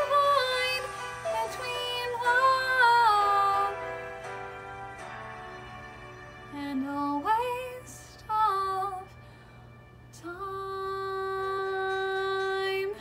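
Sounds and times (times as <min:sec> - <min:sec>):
woman singing ballad: 0:00.0 - 0:04.2, 0:06.5 - 0:09.2, 0:10.2 - 0:13.0
soft accompaniment: 0:00.0 - 0:13.0.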